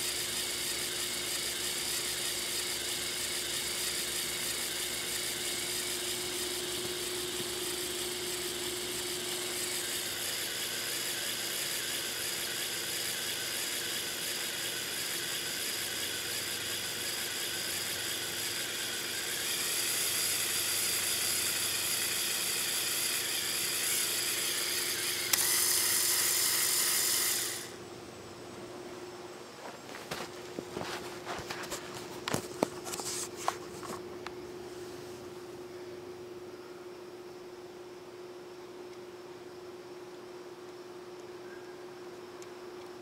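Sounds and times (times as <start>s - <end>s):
toy electric motor gears whirring: 0.0s - 27.8s.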